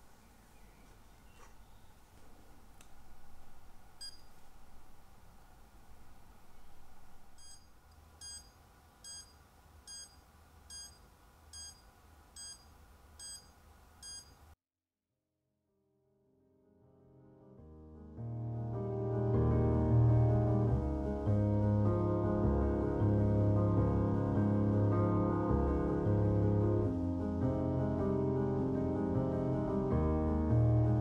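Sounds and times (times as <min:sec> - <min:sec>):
dosimeter beeping: 0:04.0 - 0:04.4, 0:07.3 - 0:14.4.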